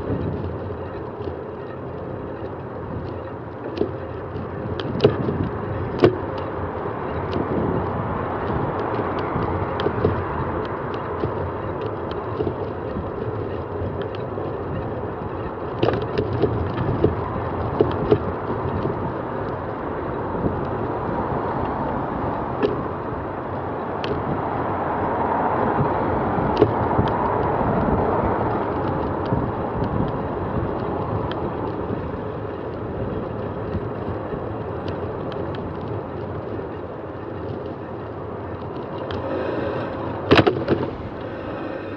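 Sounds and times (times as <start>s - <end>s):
road traffic: 0.0s - 41.9s
air rushing past: 39.0s - 41.9s
tyres hissing on wet road: 39.1s - 40.3s.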